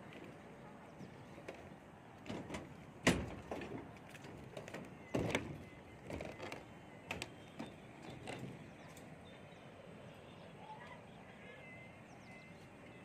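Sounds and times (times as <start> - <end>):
footsteps on formwork and rebar: 0.0 - 9.0.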